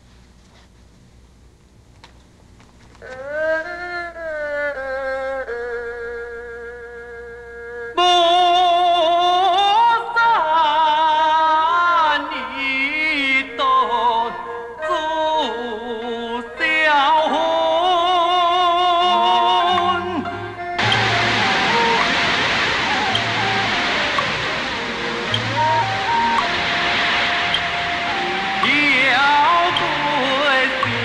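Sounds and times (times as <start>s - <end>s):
opera singing with heavy vibrato: 7.9s - 31.0s
instrumental accompaniment: 19.0s - 31.0s.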